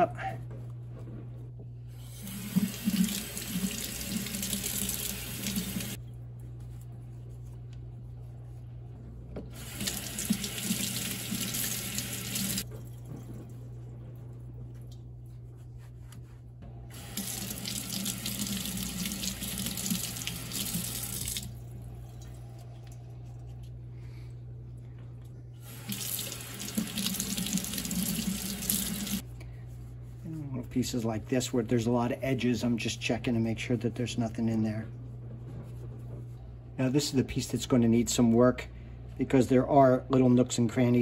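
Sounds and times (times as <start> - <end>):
faucet running into steel sink: 2.0 - 6.0, 9.5 - 12.6, 16.9 - 21.6, 25.6 - 29.2.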